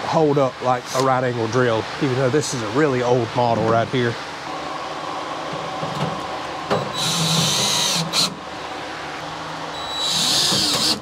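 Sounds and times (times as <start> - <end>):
drill motor whine: 6.9 - 8.4, 9.7 - 11.0.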